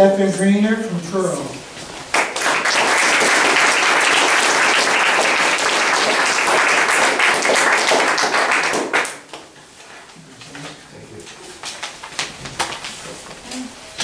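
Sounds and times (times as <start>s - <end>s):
audience applauding: 2.1s - 9.3s.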